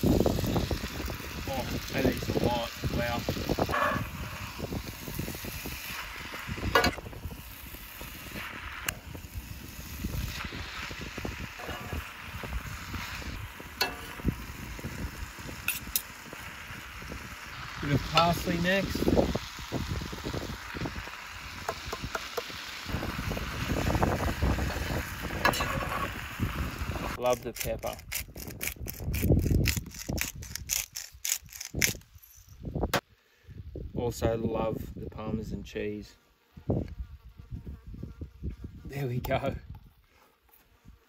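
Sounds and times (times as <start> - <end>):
wind rumbling on microphone: 0.0 - 35.7, 36.6 - 40.0
metal tongs scraping skillet: 11.6 - 12.1, 13.8 - 14.3, 15.7 - 16.1.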